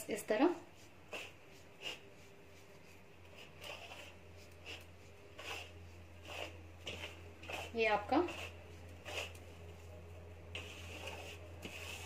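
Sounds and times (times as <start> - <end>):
soft scrapes on metal plate: 3.4 - 12.0.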